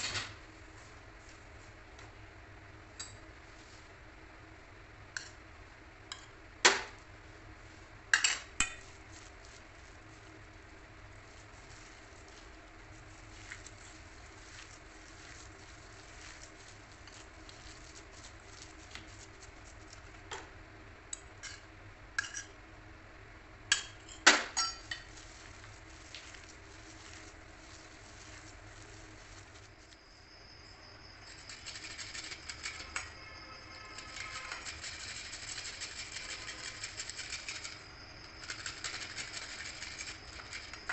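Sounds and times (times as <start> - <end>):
hands squishing mashed mixture: 11.0 - 20.1, 25.1 - 30.0
grater scraping: 11.2 - 20.0, 31.2 - 40.9
steel bowls clinking: 23.8 - 25.1.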